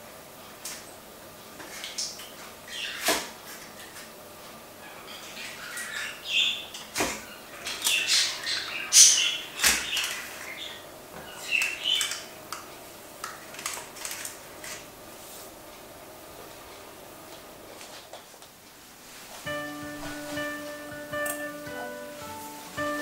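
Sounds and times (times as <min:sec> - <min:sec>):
paper baking cups crinkling: 0:13.2 - 0:14.9.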